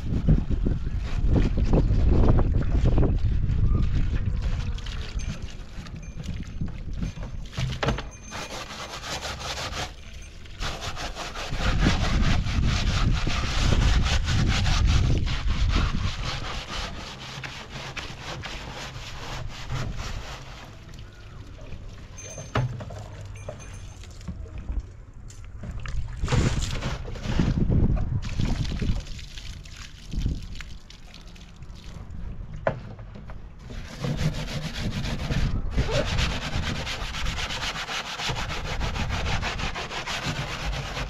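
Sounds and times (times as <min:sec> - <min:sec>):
rapid scraping strokes: 0:08.3 - 0:20.8, 0:33.8 - 0:41.0.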